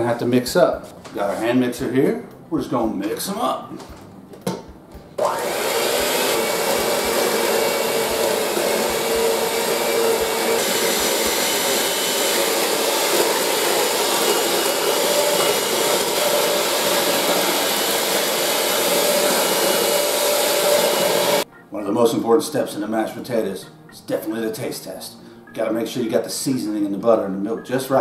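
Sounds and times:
electric hand mixer running: 0:05.2 - 0:21.4.

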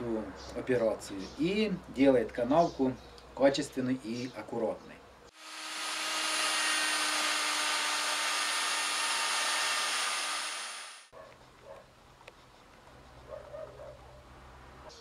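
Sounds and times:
router whining cutting wood: 0:05.4 - 0:11.1.

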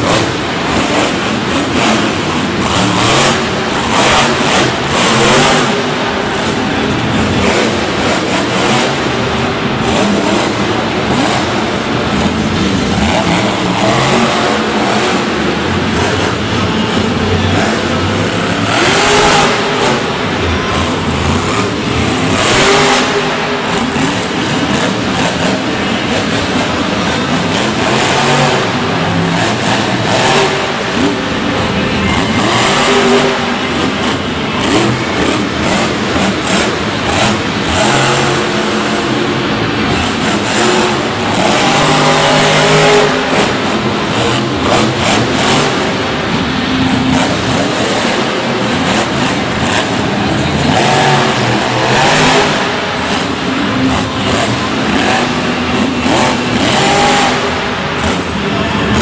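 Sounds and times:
monster truck engine revving: 0:00.0 - 0:59.0.

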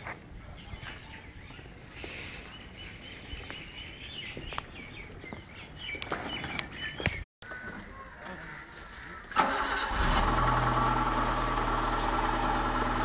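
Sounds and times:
small birds chirping: 0:00.0 - 0:09.3.

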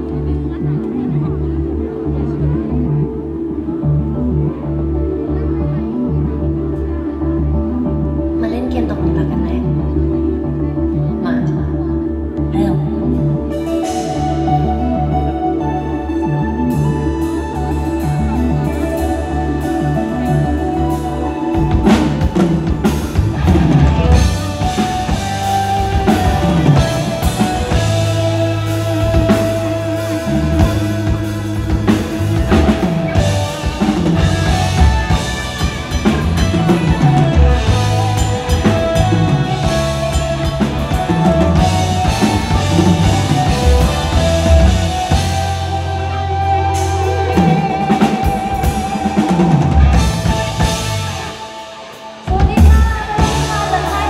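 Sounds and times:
electric guitar: 0:00.0 - 0:54.0
keyboard: 0:00.0 - 0:54.0
drum kit beat: 0:16.7 - 0:54.0.

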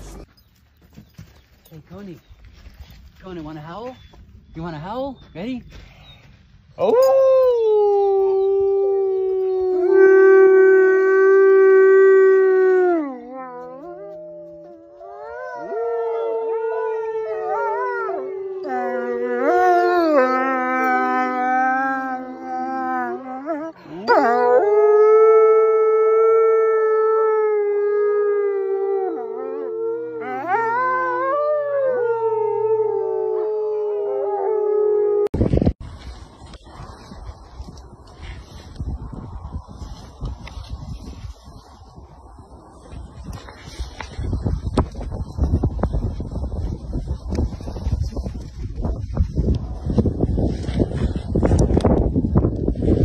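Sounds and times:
wolf howling: 0:06.9 - 0:35.4.

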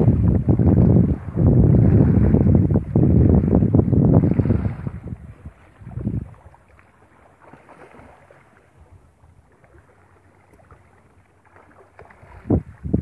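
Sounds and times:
wind buffeting microphone: 0:00.0 - 0:06.8, 0:12.0 - 0:13.0.

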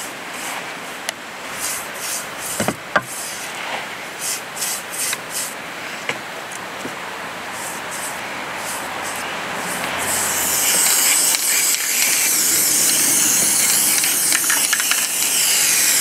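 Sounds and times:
bristle brush scratching on wood: 0:01.5 - 0:05.6, 0:07.5 - 0:16.0.

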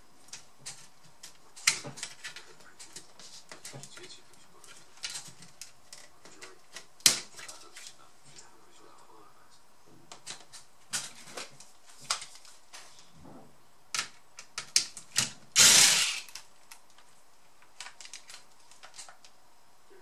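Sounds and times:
electric screwdriver running: 0:15.6 - 0:16.4.

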